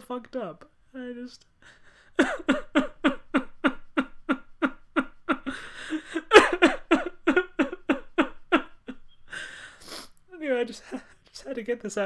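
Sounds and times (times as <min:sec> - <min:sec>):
person sobbing: 0:01.6 - 0:10.1.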